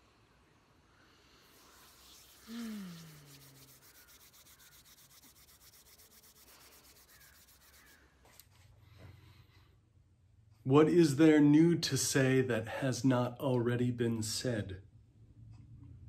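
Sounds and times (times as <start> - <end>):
woman's soft sighing note: 2.5 - 3.4.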